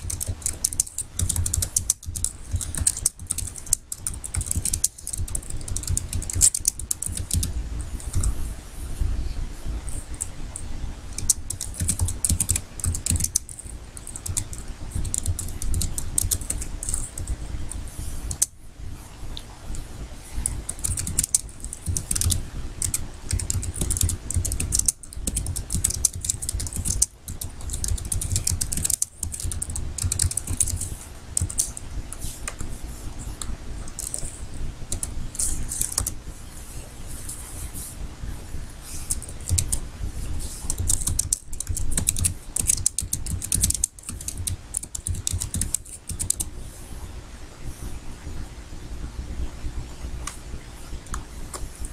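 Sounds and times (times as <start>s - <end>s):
computer keyboard typing: 0.0s - 8.3s, 11.1s - 18.5s, 20.4s - 32.7s, 33.4s - 36.2s, 38.9s - 39.8s, 40.4s - 46.5s.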